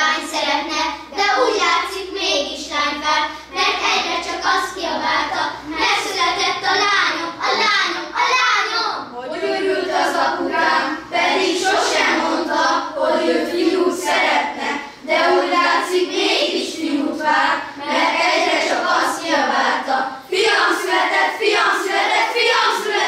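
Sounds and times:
children singing: 8.2s - 23.0s.

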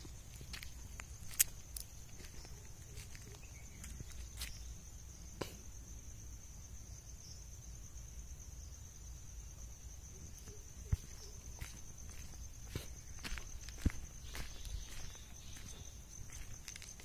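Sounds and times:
footsteps on dry ground: 0.0s - 4.7s, 10.4s - 17.0s
high-pitched insect drone: 0.0s - 17.0s.

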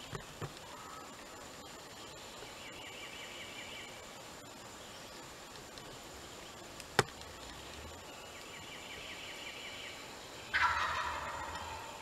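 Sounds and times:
turkey gobbling: 10.5s - 12.0s.

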